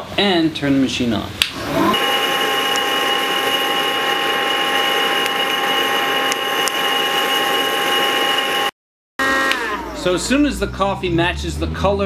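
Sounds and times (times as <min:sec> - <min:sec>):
coffee roaster whirring: 0:01.7 - 0:10.0.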